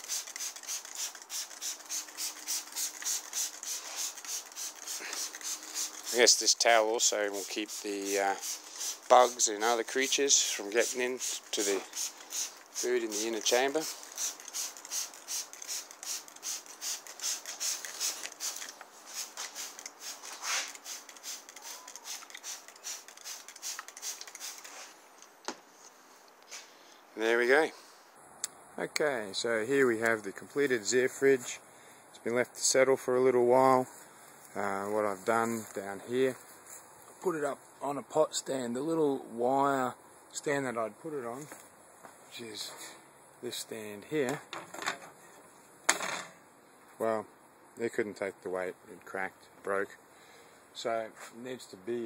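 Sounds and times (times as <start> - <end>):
spray bottle squirting water: 0.0 - 24.9.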